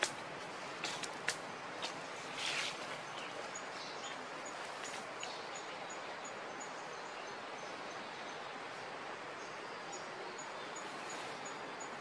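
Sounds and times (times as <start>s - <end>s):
forest ambience hiss: 0.0s - 12.0s.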